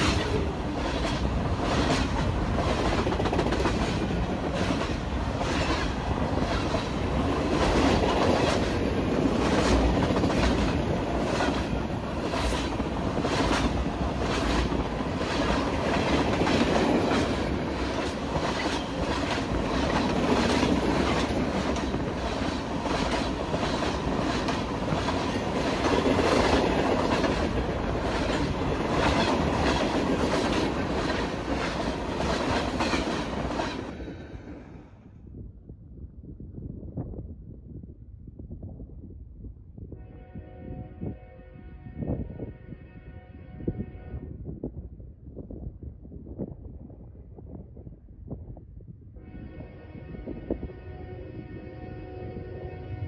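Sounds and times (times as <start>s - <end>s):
freight train rumbling past: 0.0s - 35.2s, 49.2s - 53.0s.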